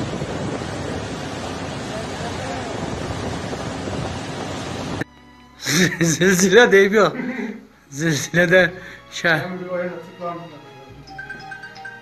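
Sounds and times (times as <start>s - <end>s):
wind on microphone: 0.0s - 5.0s.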